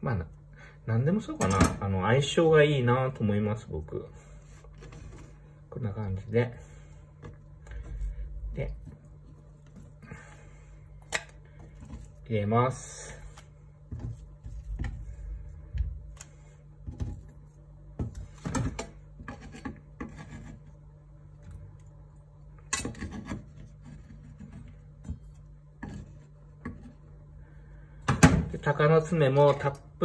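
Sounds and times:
knife scraping wooden cutting board: 0:19.2 - 0:20.8.

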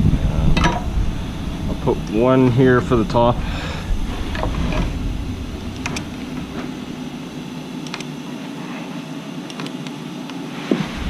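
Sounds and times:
wind rumble on microphone: 0:00.0 - 0:07.5, 0:10.7 - 0:11.0.

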